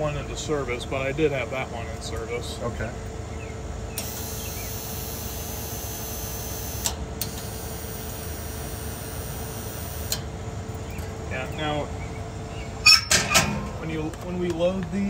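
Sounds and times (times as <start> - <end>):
cooling unit humming: 0.0 - 15.0
vend motor clicks: 4.0 - 10.3.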